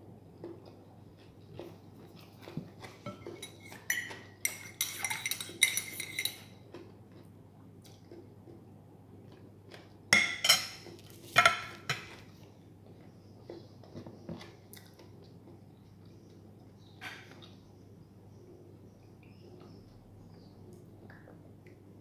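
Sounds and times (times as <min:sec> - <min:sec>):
spoon clinking in ceramic mug: 0:03.4 - 0:06.5.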